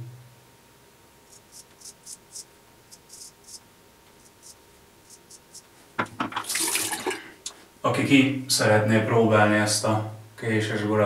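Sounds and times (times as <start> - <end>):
razor scraping stubble: 1.3 - 3.6.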